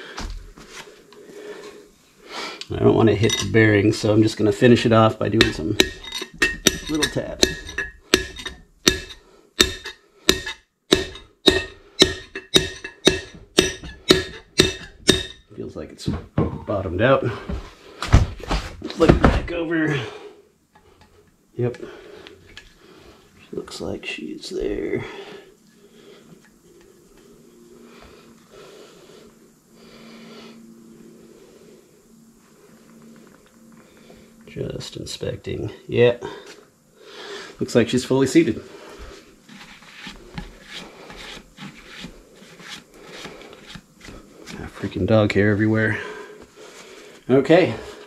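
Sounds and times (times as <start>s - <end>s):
slow breathing: 0.0s - 2.7s, 7.7s - 10.6s, 19.9s - 23.5s, 24.9s - 34.5s, 36.2s - 37.6s, 38.6s - 44.6s, 45.9s - 48.0s
faint steady hum: 0.0s - 48.0s.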